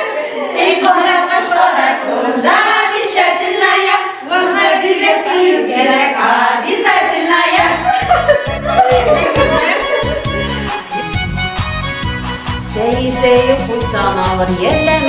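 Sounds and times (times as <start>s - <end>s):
women singing folk song together: 0.0s - 8.4s, 12.8s - 15.0s.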